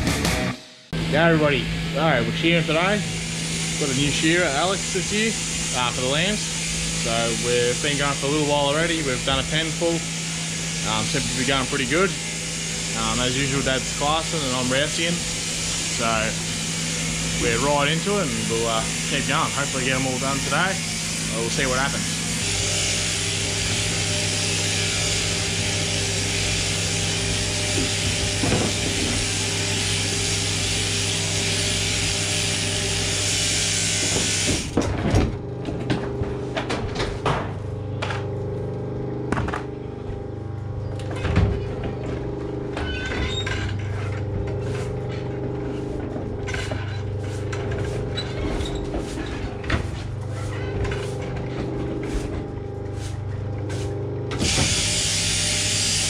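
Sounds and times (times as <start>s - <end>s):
overhead gear humming: 0.0s - 56.0s
shearing handpiece buzzing: 0.0s - 56.0s
knocks and clatter: 27.7s - 29.4s, 34.1s - 38.3s.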